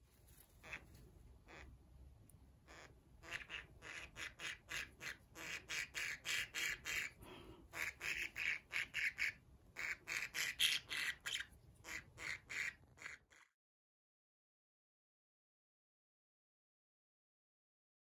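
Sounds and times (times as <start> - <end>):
budgerigar calling: 0.6 - 1.8, 2.7 - 13.5.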